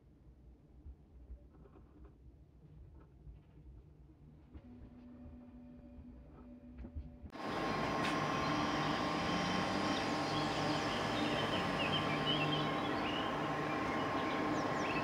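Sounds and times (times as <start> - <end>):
faint hum: 0.6 - 15.0
birds chirping: 7.4 - 15.0.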